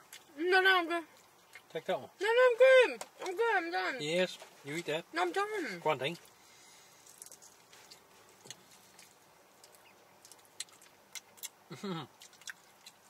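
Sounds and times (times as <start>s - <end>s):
chewing clicks and smacks: 7.0s - 13.0s
person humming: 11.7s - 12.1s.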